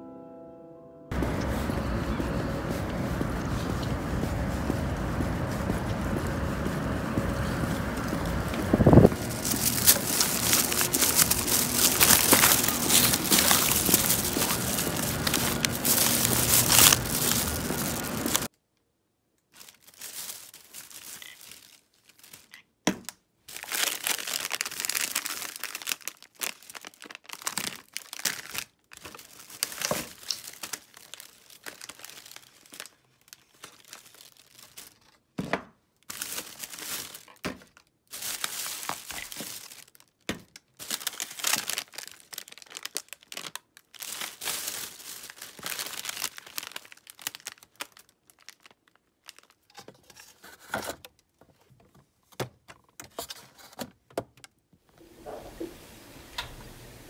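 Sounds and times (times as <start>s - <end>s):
plastic bag rustling: 1.1s - 18.5s, 19.5s - 22.6s, 23.5s - 35.3s, 36.0s - 40.2s, 40.8s - 50.8s
packages knocking: 4.0s - 18.5s.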